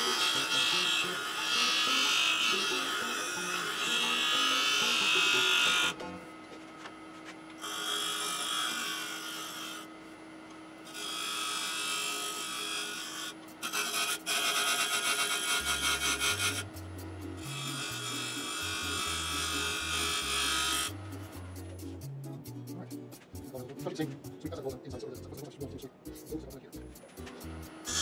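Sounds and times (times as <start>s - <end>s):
lathe tool scraping wood: 0.0s - 6.0s, 7.6s - 9.9s, 10.9s - 16.7s, 17.4s - 21.0s
background music with bass line: 15.7s - 18.1s, 18.9s - 28.0s.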